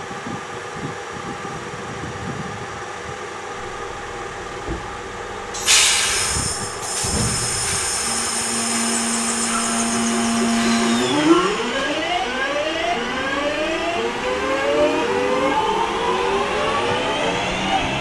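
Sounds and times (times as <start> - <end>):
electric train humming: 2.7 - 18.0
rising electric whines: 3.5 - 18.0.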